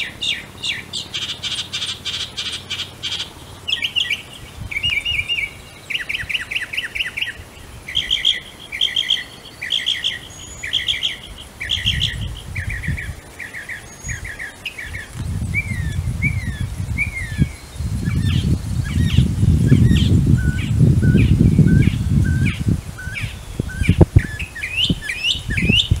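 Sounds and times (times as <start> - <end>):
mockingbird singing: 0.0 - 26.0.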